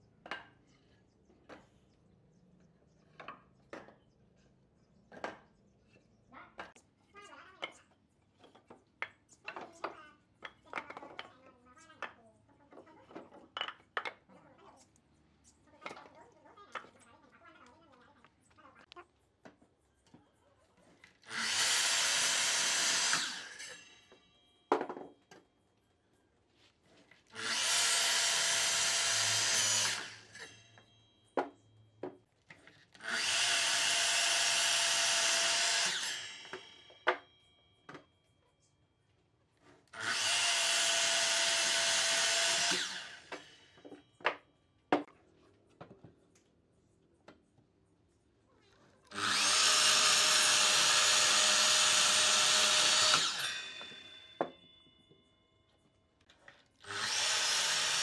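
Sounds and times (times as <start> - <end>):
miter saw cutting log: 21.2 - 23.8, 27.4 - 30.6, 33.0 - 36.8, 39.9 - 43.6, 49.1 - 54.2, 56.8 - 58.0
saw blade winding down: 21.2 - 24.2, 27.3 - 30.9, 33.0 - 37.0, 39.9 - 43.9, 49.1 - 54.6, 56.8 - 58.0.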